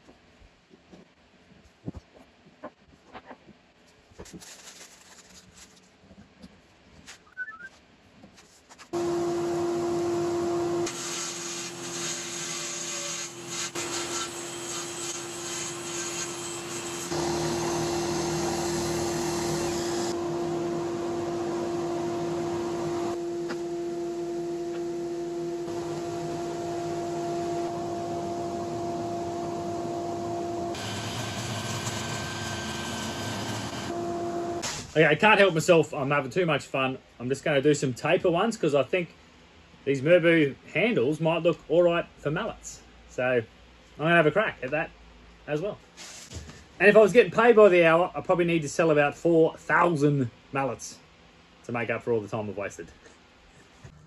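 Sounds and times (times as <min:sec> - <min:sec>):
table saw and drill humming: 0:09.0 - 0:34.6.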